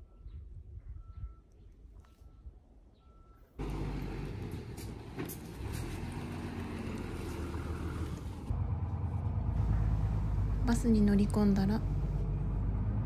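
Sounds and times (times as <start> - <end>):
faint short beep: 0.0 - 3.6
bus diesel engine: 3.0 - 13.0.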